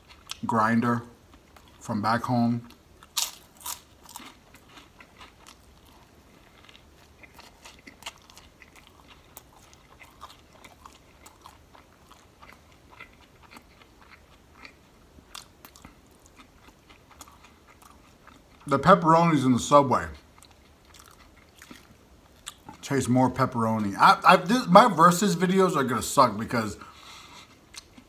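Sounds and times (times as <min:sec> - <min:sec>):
sandwich chewing crunches: 0:02.6 - 0:18.8, 0:20.0 - 0:22.9, 0:27.0 - 0:28.0.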